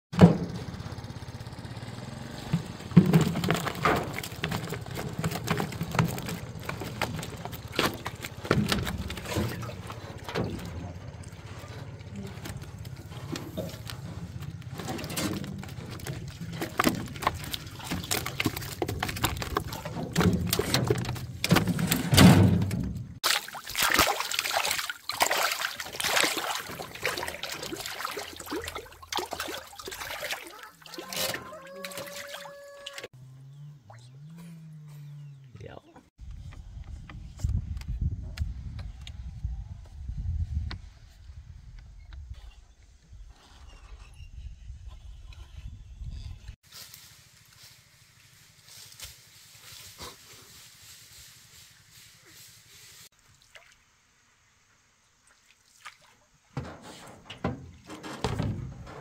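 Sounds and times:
knocks and handling noises: 0:02.5 - 0:23.2, 0:56.6 - 0:59.0
water pouring and splashing: 0:02.8 - 0:21.8, 0:22.6 - 0:33.1, 0:53.0 - 0:54.0.

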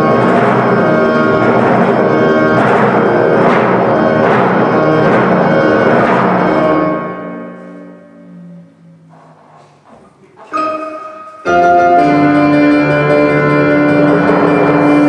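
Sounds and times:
heavy drum strokes: 0:00.0 - 0:08.0
grand piano: 0:00.0 - 0:15.0
timpani: 0:00.0 - 0:15.0.

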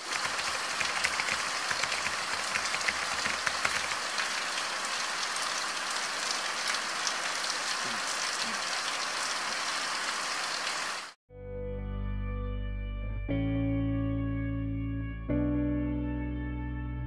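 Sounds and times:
heavy rain on tarps and roofing: 0:00.0 - 0:11.2
water streaming off awning: 0:00.0 - 0:11.2.

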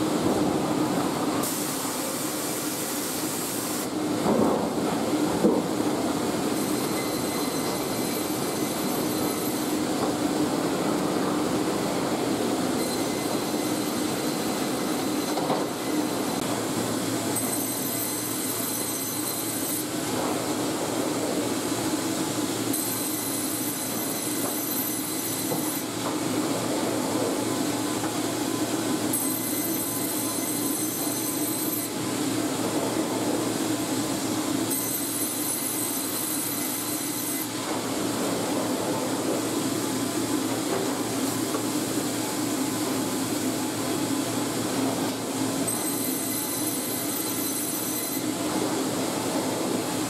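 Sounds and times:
high metallic saw whine: 0:06.5 - 0:09.9, 0:12.7 - 0:16.4, 0:17.3 - 0:19.9, 0:22.7 - 0:25.9, 0:29.1 - 0:32.0, 0:34.7 - 0:37.6, 0:45.7 - 0:48.4.

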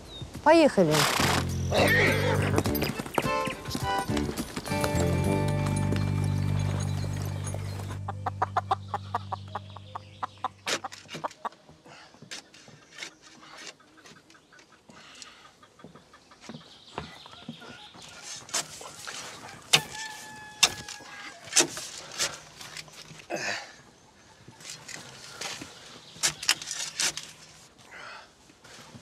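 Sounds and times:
background music: 0:01.0 - 0:10.6
hens clucking: 0:07.8 - 0:11.7.

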